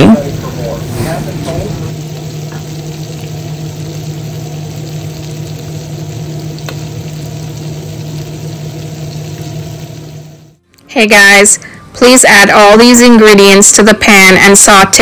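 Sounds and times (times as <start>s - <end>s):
range hood fan humming: 0.0s - 15.0s
fish sizzling in hot oil: 0.2s - 10.6s.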